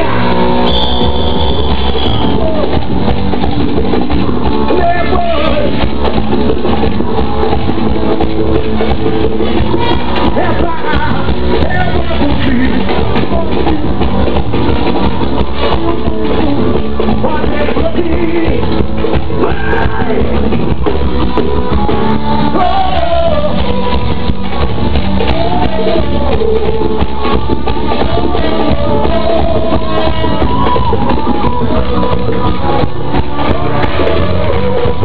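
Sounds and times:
loud live band music: 0.0s - 35.0s
person singing: 9.6s - 35.0s.

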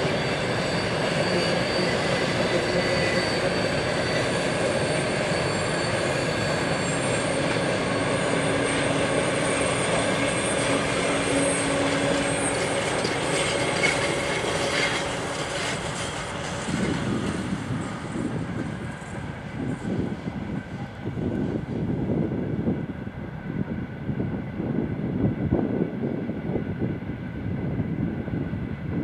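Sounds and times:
high wheel squeal: 0.0s - 21.4s
freight train wheels rumbling: 0.0s - 29.0s.

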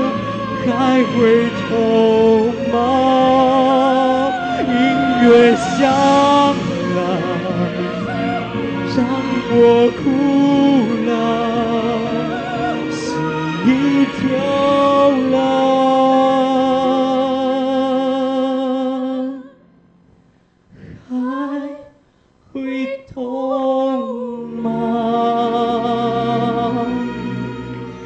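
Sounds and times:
backing track: 0.0s - 18.2s
man and woman singing duet: 0.0s - 19.6s, 20.8s - 28.0s.

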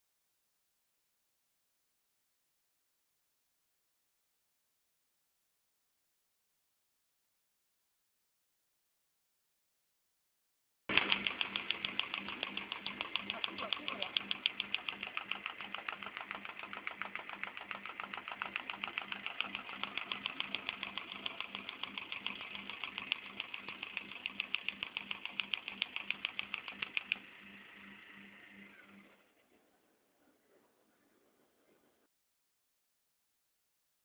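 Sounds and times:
paper folding machine clacking: 10.9s - 27.3s
machine hum: 10.9s - 32.0s.

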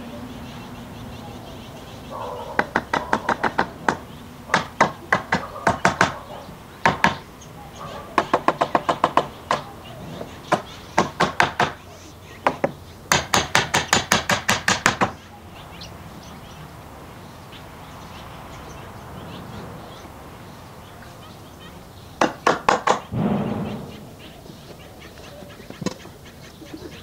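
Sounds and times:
hammer knocking wood: 2.6s - 6.2s, 6.8s - 7.2s, 8.2s - 9.7s, 10.5s - 11.8s, 12.4s - 15.2s, 22.2s - 23.9s.

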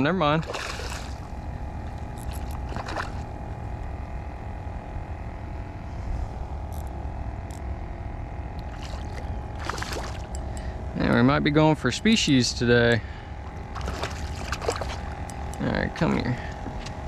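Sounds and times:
low hum and rumble: 0.0s - 17.0s
fish splashing at water surface: 0.4s - 1.2s, 2.3s - 3.2s, 8.6s - 10.4s, 13.7s - 15.2s.

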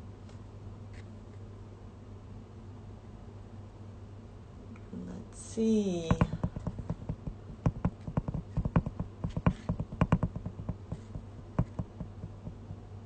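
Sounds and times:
fingers tapping smartphone: 6.1s - 12.9s.

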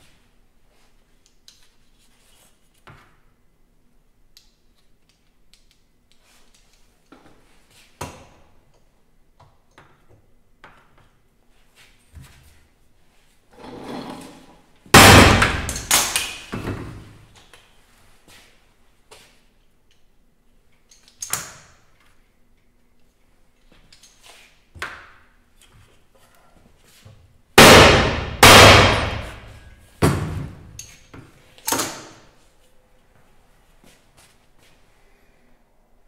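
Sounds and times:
sledgehammer striking crimping tool: 27.6s - 29.6s
tools clicking and knocking: 30.7s - 32.2s.

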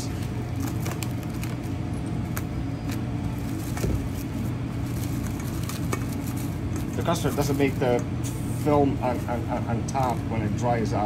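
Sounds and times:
cling film crinkling: 0.0s - 10.6s
low mechanical hum: 0.0s - 11.0s.

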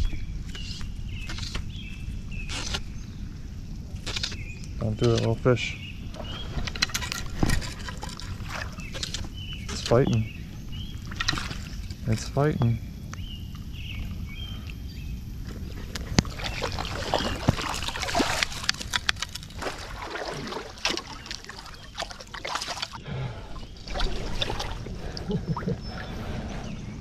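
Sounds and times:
water sloshing and splashing: 6.1s - 12.3s, 15.4s - 27.0s
handling ticks and knocks: 17.2s - 19.8s.

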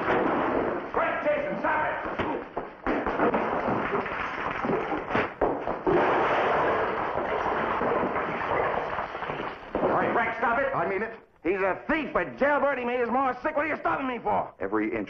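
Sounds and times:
punches: 0.0s - 10.5s
wooden chairs crashing and breaking: 0.0s - 10.7s.

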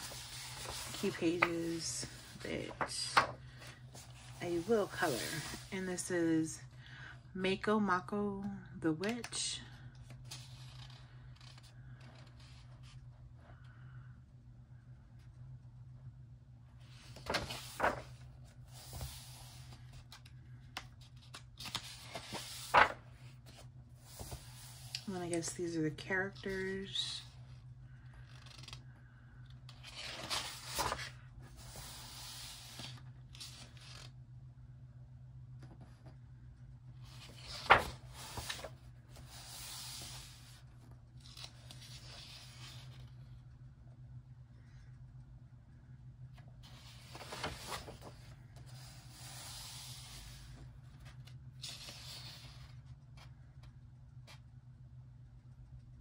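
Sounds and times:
book page turning: 0.0s - 5.7s, 10.1s - 13.0s, 17.0s - 25.4s, 28.1s - 29.0s, 29.7s - 34.2s, 37.0s - 43.3s, 46.6s - 52.7s
hand sliding over paper: 0.0s - 5.8s, 16.9s - 19.9s, 21.6s - 25.1s, 29.9s - 34.1s, 37.1s - 40.6s, 46.6s - 52.6s
steady low hum: 0.0s - 56.0s
page turning swish: 21.6s - 23.0s, 37.2s - 40.4s.

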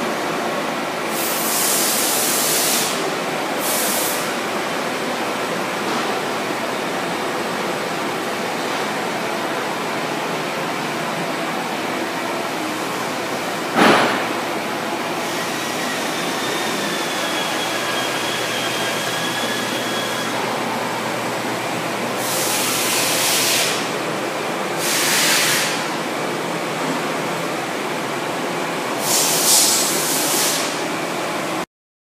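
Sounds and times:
loud hiss bursts: 1.1s - 3.0s, 3.6s - 4.4s, 22.2s - 23.9s, 24.8s - 25.9s, 29.0s - 30.8s
lathe running: 15.1s - 24.1s.

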